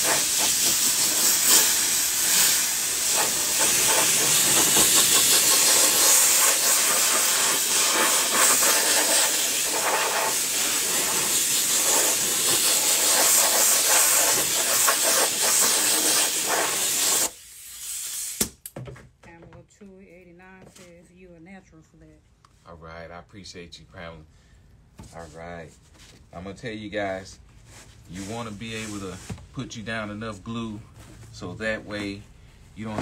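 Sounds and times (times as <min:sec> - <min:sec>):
spray gun hissing: 0:00.0 - 0:18.4.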